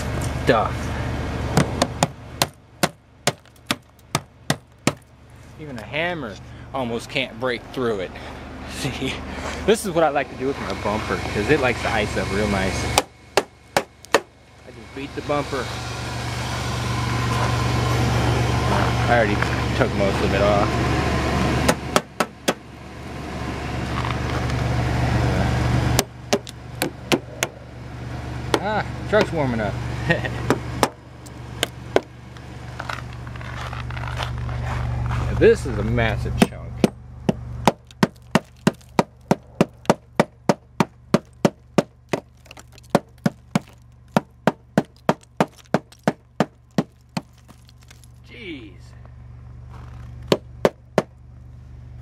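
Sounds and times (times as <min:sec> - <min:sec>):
steady low hum: 0:00.0 - 0:52.0
hammer chipping ice: 0:01.9 - 0:05.0, 0:37.6 - 0:48.2.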